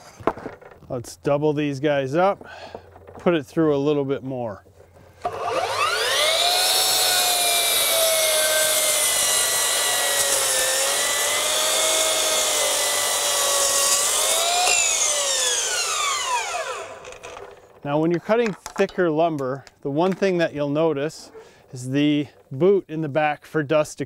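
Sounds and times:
miter saw cutting wood: 5.2s - 17.8s.

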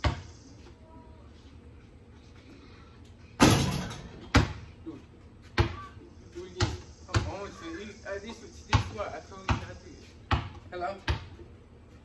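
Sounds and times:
basketball bouncing on concrete: 0.0s - 0.3s, 4.2s - 4.7s, 5.4s - 5.9s, 6.6s - 7.4s, 8.7s - 11.5s
ball banging hoop with rattle: 3.4s - 4.7s.

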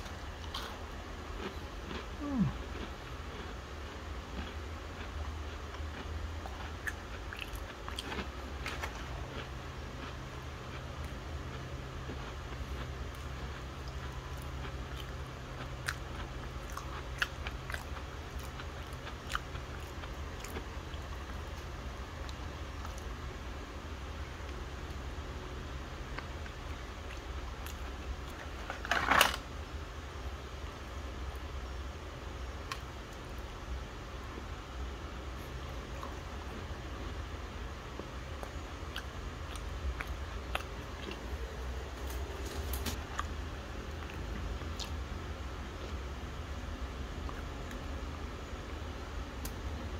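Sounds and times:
biscuits crunching: 0.0s - 23.1s, 26.1s - 29.4s
low steady hum: 0.0s - 49.9s.

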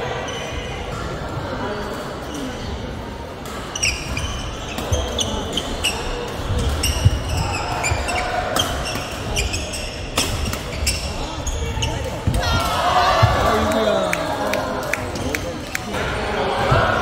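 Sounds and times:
background chatter: 0.0s - 17.0s
shoes squeaking on court: 3.5s - 12.4s.

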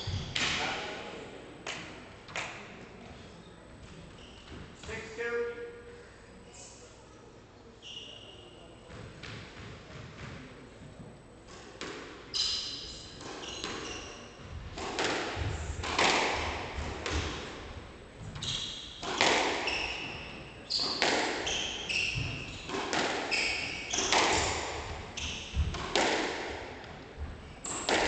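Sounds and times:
squash ball hits: 14.7s - 17.5s, 19.0s - 26.6s, 27.6s - 28.0s
shoes squeaking on wooden floor: 19.6s - 24.5s.

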